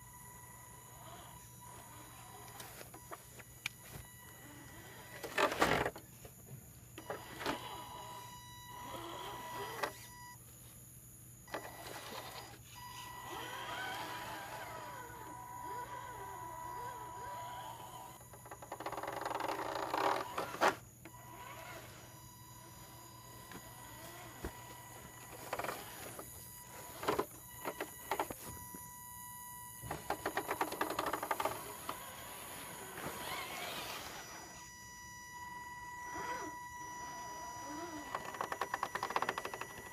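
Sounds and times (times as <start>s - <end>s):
rc car motor whining: 0.0s - 6.1s, 7.0s - 10.4s, 11.4s - 39.9s
toy car drivetrain clicking: 30.1s - 32.4s, 37.7s - 39.9s.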